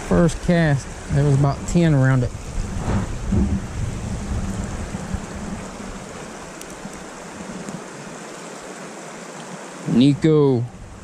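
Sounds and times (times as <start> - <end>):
river rushing over rocks: 0.0 - 11.0
low rumble: 2.2 - 6.1.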